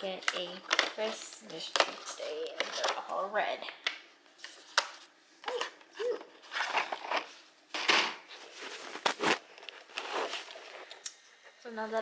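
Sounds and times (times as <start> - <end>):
cardboard rustling: 8.2 - 10.9.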